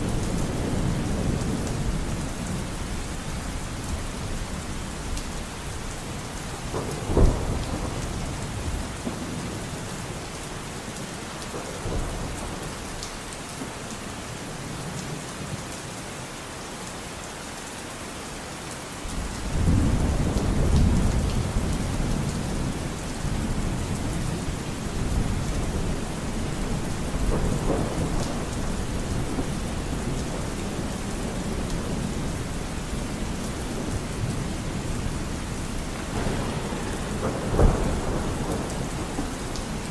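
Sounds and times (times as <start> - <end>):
steady rain: 0.0 - 39.9
thunder rumbling: 6.5 - 10.1, 19.1 - 39.9
thunder crack: 26.6 - 32.2, 36.0 - 39.9.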